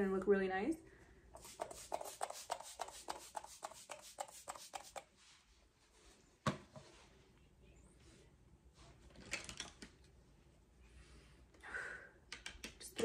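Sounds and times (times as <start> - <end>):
spray bottle hissing sprays: 1.4 - 5.1.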